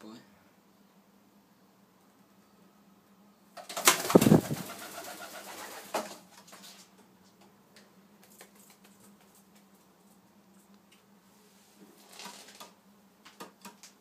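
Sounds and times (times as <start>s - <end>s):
pigeon wings flapping: 3.6s - 6.8s, 8.2s - 9.6s.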